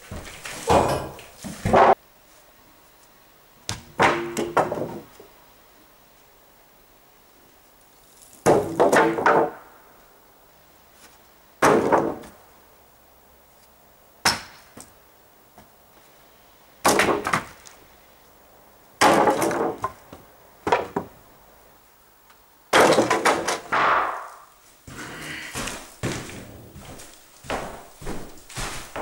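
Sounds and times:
wooden boards crashing onto pile: 0.0 - 2.0, 4.0 - 5.1, 8.4 - 9.7, 11.6 - 12.4, 16.8 - 17.6, 19.0 - 20.0, 22.7 - 26.6.

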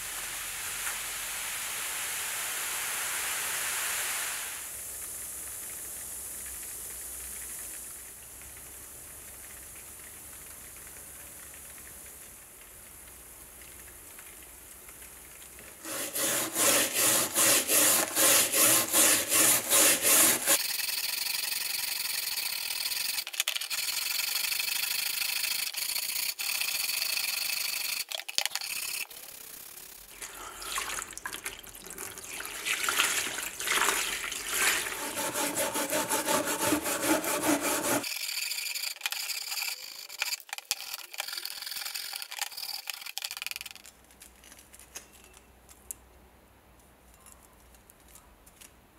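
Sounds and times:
brush scrubbing rusted metal blade: 15.8 - 20.6, 33.0 - 42.8.

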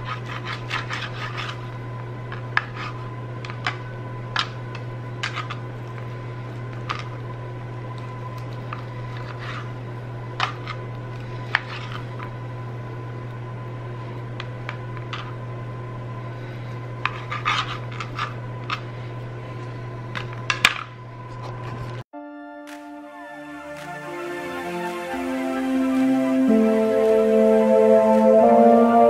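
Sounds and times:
steady low hum: 0.0 - 22.0
music: 22.2 - 29.0.

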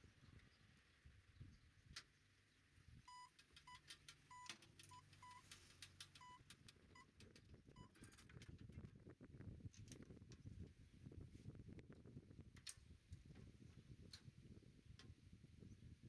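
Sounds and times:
short electronic beeps: 3.1 - 5.4.

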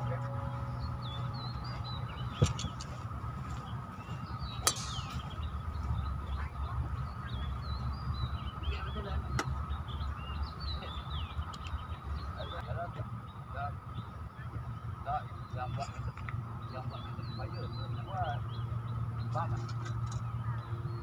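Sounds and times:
birds chirping: 0.0 - 21.0
low outdoor rumble: 0.0 - 21.0
golf club striking ball: 4.6 - 5.4.

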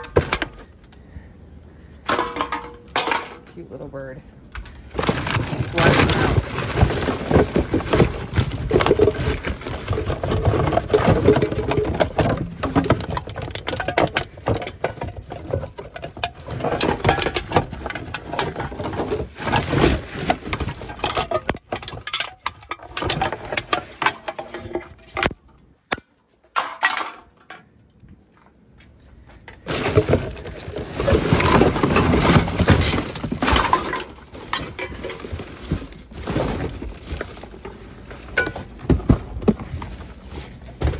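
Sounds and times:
plastic bags rustling and crinkling: 4.8 - 25.4, 29.6 - 40.9.

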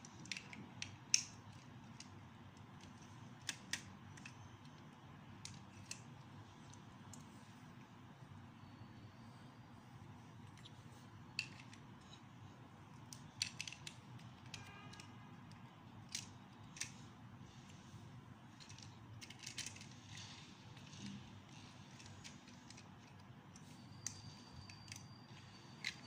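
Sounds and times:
faint steady low hum: 0.0 - 26.0
plastic bricks clicking: 0.1 - 4.8, 13.0 - 17.0, 18.6 - 26.0.

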